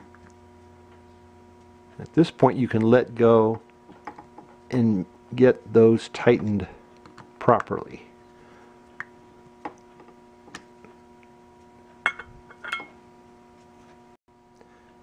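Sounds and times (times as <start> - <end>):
faint steady hum: 0.0 - 15.0
metallic clinks: 12.1 - 13.0.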